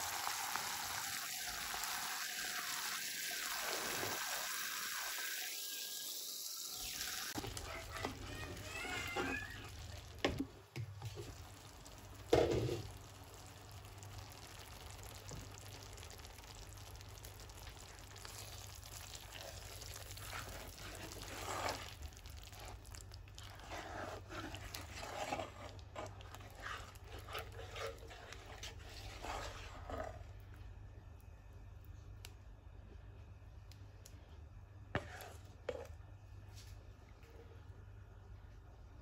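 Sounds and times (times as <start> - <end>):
spoon stirring thick sauce: 7.3 - 30.8, 34.9 - 36.0.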